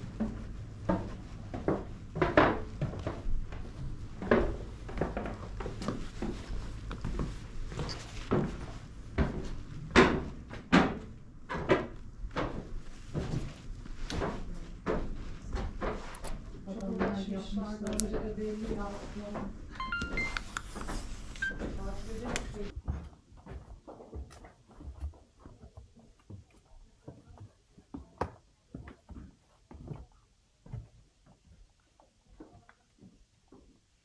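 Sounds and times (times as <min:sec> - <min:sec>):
low steady hum: 0:00.0 - 0:22.8.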